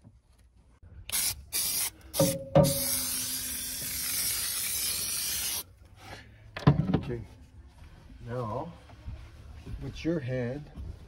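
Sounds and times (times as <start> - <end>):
aerosol can spraying: 1.1 - 5.6.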